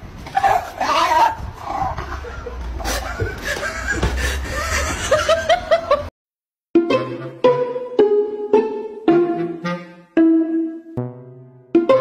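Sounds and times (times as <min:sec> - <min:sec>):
person laughing: 0:01.7 - 0:06.1.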